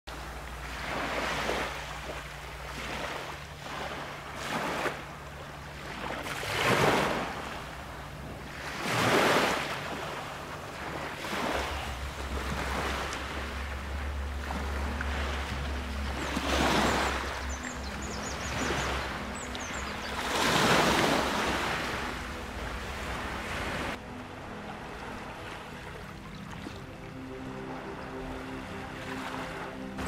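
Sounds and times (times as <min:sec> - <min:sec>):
small waves breaking on beach: 0:00.1 - 0:27.0.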